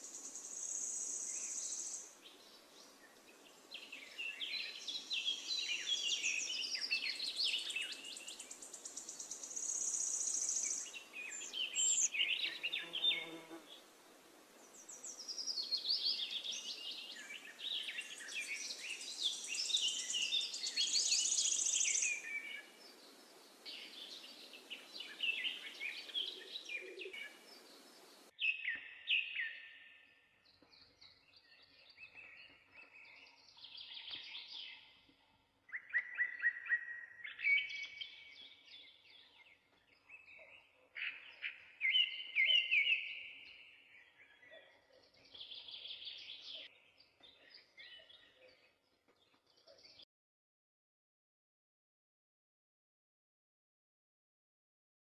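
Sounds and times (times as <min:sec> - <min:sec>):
steady background hiss: 0:00.0 - 0:04.9, 0:27.2 - 0:28.3
birds chirping and singing: 0:00.0 - 0:13.6, 0:14.7 - 0:50.0.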